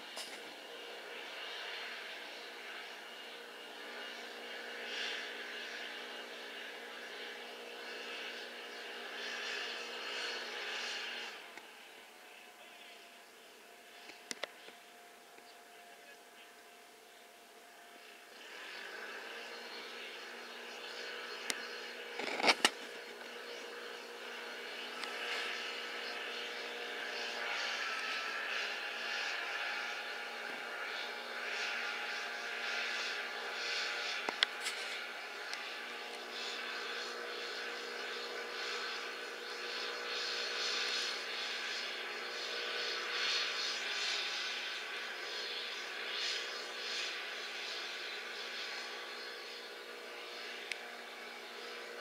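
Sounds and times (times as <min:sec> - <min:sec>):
distant ship engine droning: 0:00.0 - 0:52.0.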